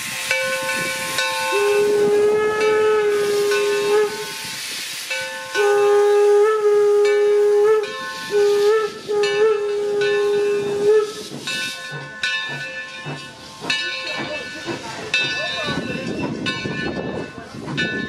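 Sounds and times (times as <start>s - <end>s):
steam locomotive whistle blowing: 0.0s - 12.0s
steam hissing: 0.0s - 18.0s
soft low locomotive beats: 5.6s - 18.0s.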